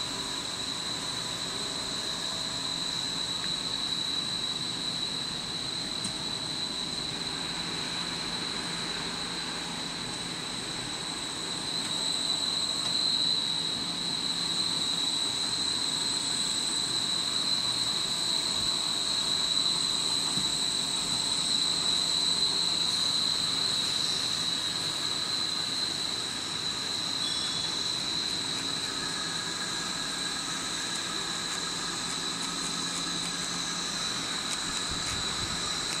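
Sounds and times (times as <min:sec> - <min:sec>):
high-pitched machine whine: 0:00.0 - 0:36.0.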